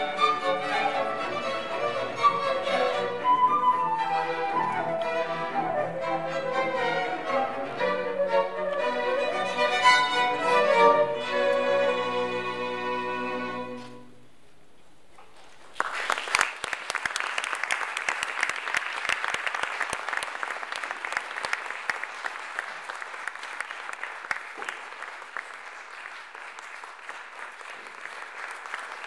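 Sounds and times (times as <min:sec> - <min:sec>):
audience applauding: 0:15.5 - 0:29.0.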